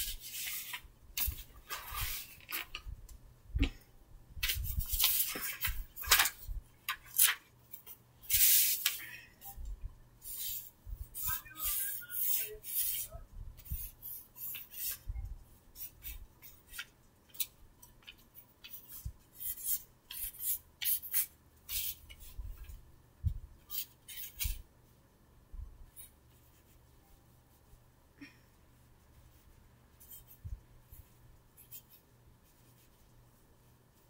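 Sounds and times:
pencil scratching on paper: 10.2s - 15.1s, 18.7s - 22.3s, 29.2s - 33.1s.

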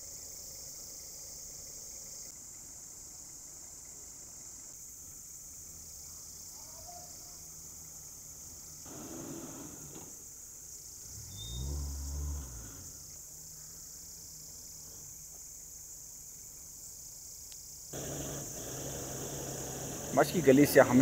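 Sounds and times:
high-pitched insect chirring: 10.7s - 17.9s.

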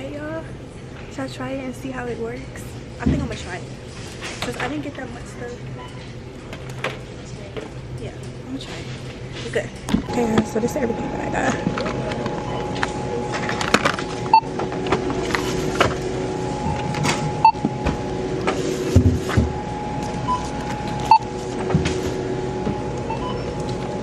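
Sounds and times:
electrical hum: 0.0s - 24.0s
barcode scanner beeps: 10.0s - 14.6s, 16.2s - 18.2s, 19.5s - 21.5s, 22.8s - 24.0s
items clattering: 11.4s - 22.8s.

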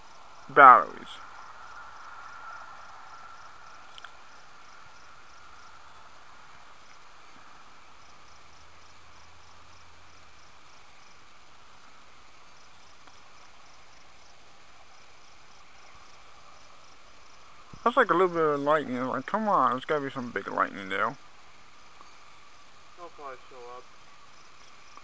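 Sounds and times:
insects chirping: 0.0s - 25.0s.

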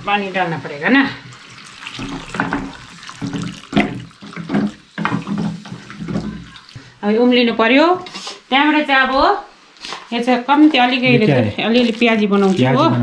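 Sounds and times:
water pouring into dal: 1.1s - 7.0s, 11.2s - 13.0s
splashing into thick mixture: 1.2s - 7.0s, 11.3s - 13.0s.

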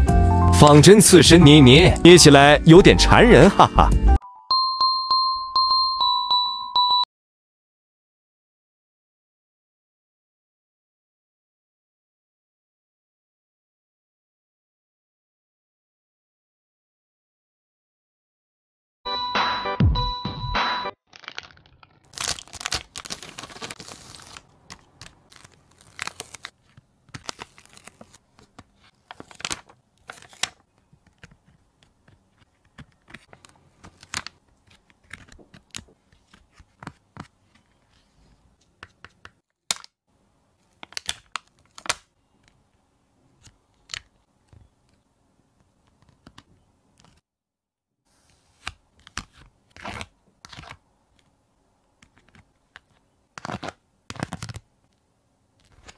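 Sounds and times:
plastic packaging crinkling: 21.1s - 31.5s, 32.2s - 36.8s.

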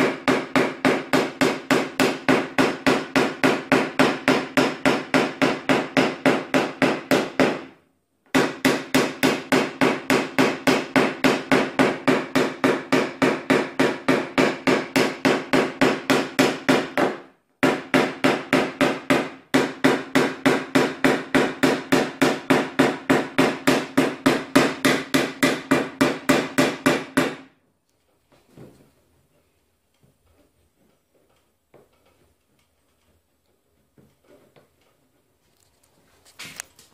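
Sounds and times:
hammer tapping on steel panel: 0.0s - 27.5s.

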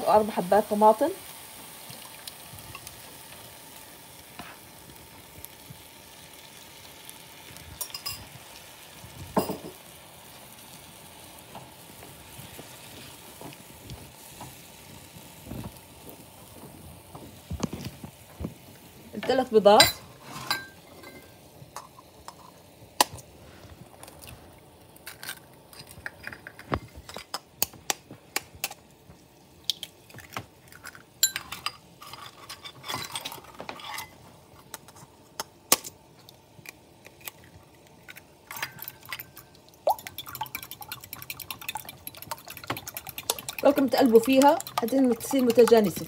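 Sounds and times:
taps and clinks of dishes: 9.4s - 9.8s
eggs cracking into bowl: 40.0s - 46.0s
whisking eggs in ceramic bowl: 40.0s - 46.0s.

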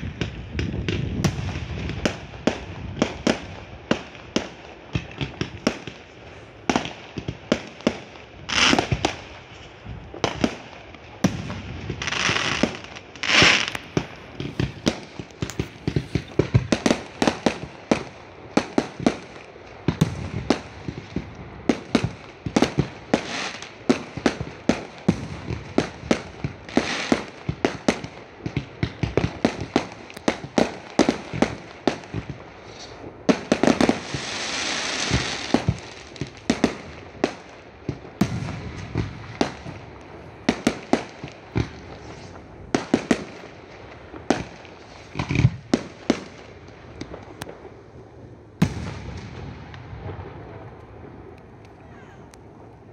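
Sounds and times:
fireworks bangs: 0.0s - 52.9s
steady hiss: 11.5s - 19.9s, 32.4s - 51.7s.

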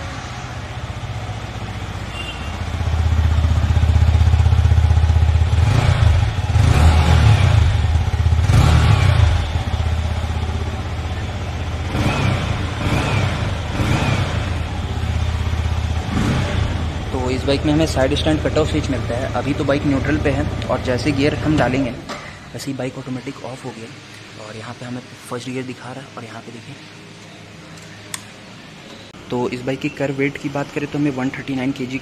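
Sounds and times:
motorcycle engine revving: 0.0s - 22.2s.

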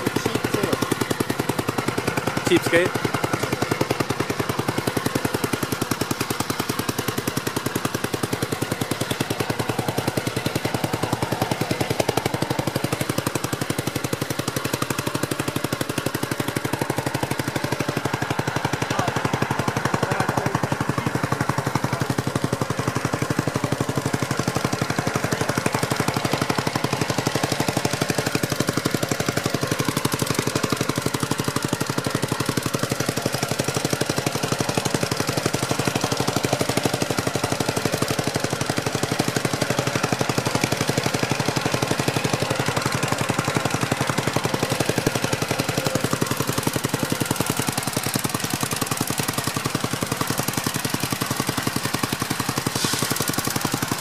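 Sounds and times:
garden tractor engine running: 0.0s - 54.0s.

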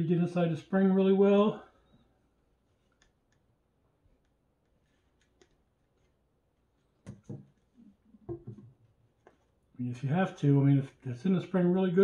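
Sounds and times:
soft knocks on tabletop: 7.0s - 7.5s, 8.3s - 8.7s.

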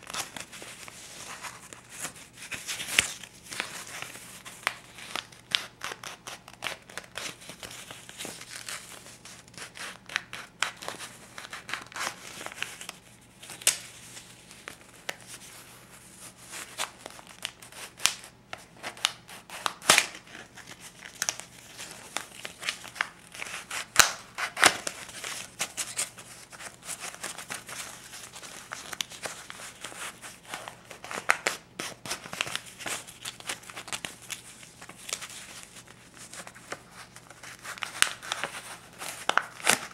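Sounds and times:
paper banknotes crinkling: 0.0s - 39.9s.

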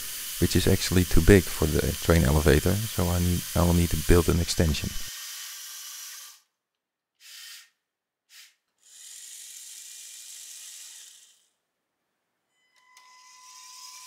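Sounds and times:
compressed air hissing: 0.0s - 5.1s.

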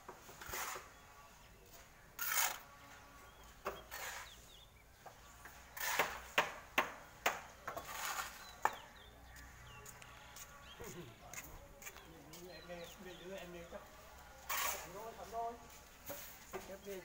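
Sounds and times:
shovel scraping concrete: 0.2s - 1.0s, 2.1s - 2.7s, 3.8s - 4.5s, 5.4s - 6.4s, 7.7s - 8.7s, 14.4s - 15.4s.

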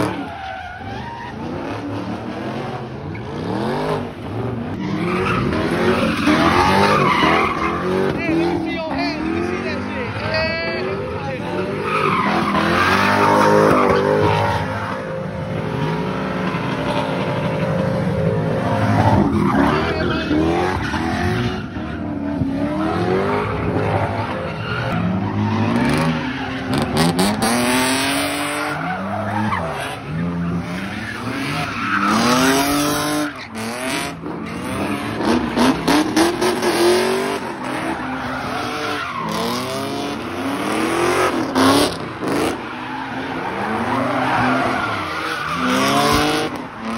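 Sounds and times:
car engine revving: 0.0s - 46.9s
tyres squealing and skidding: 0.0s - 46.9s.

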